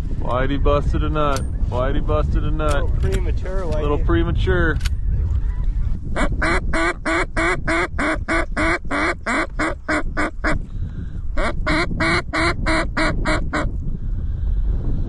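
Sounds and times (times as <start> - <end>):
wind rumble on microphone: 0.0 - 15.0
duck call quacks: 6.2 - 10.6, 11.4 - 13.7.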